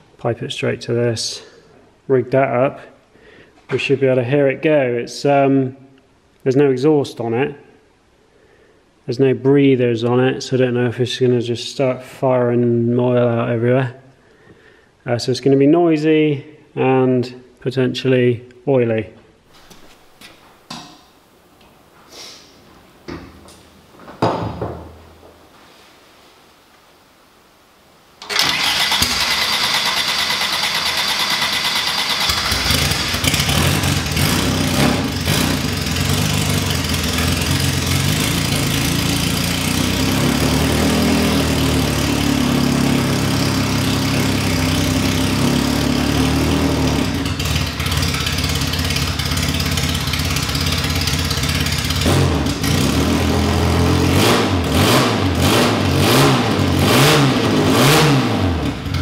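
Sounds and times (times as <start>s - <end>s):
race engine cranking and revving: 28.2s - 59.0s.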